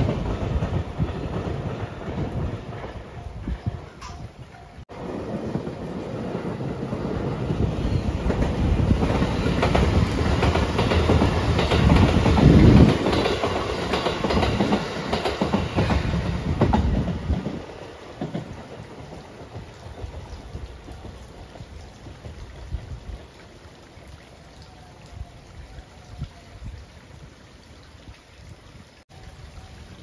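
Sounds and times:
train wheels clattering over rail joints: 8.1 - 20.3.

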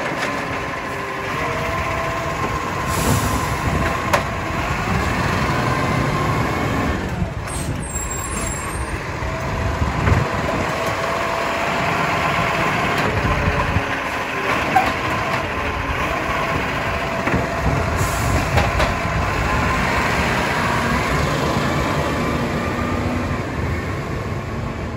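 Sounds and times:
hydraulic arm lifting bin: 0.0 - 21.1
garbage truck diesel engine: 0.0 - 24.9.

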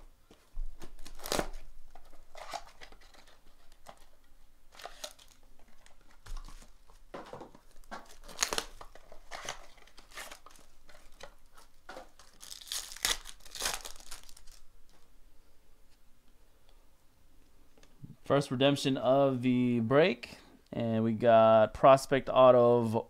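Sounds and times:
plastic wrapper crinkling: 0.8 - 15.0
cardboard box being torn open: 8.1 - 10.4.

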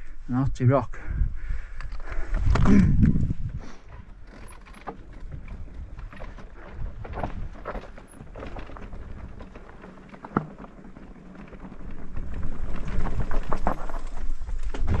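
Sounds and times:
wind on microphone: 2.2 - 3.8
bike rattling over rocks: 2.3 - 15.0.

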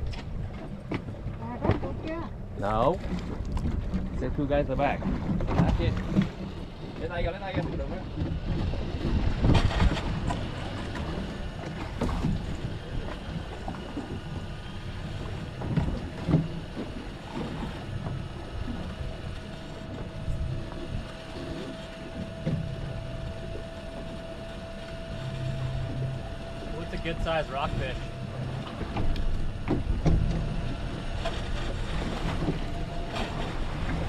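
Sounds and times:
water noise: 0.0 - 34.0
wind: 0.0 - 34.0.

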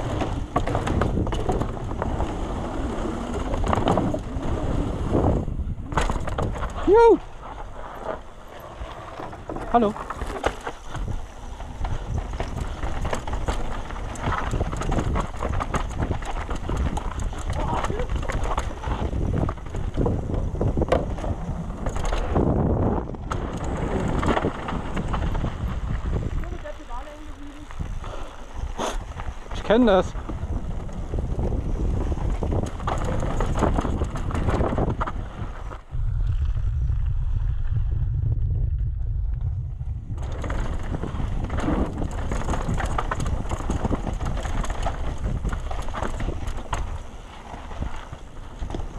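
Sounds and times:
bike clattering over roots: 0.0 - 35.9, 39.8 - 48.9
wind buffeting microphone: 0.0 - 48.9
steady low rumble: 35.8 - 46.0.

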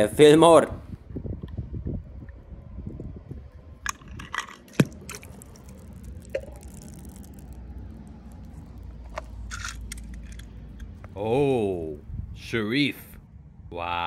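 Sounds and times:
small water sounds: 4.6 - 10.5.

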